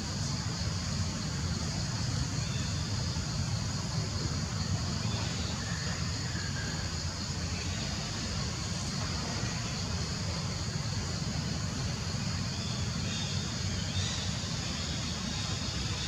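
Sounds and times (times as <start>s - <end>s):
steady high hiss: 0.0s - 16.0s.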